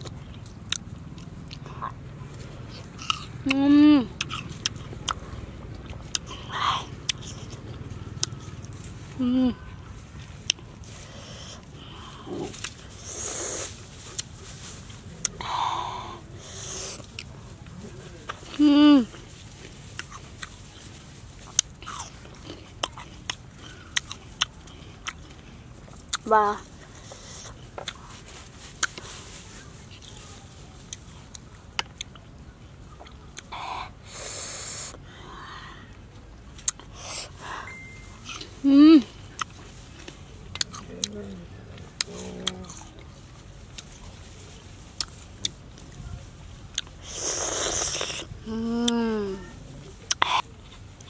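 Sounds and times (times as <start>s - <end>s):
crisp fruit chewing crunches: 0.0s - 37.5s, 38.1s - 51.0s
breathy hisses of air: 15.4s - 17.1s, 33.6s - 35.9s.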